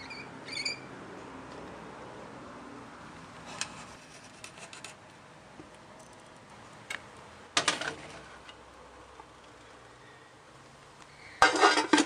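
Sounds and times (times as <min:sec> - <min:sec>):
frying pan clattering on stove: 0:11.4 - 0:12.0.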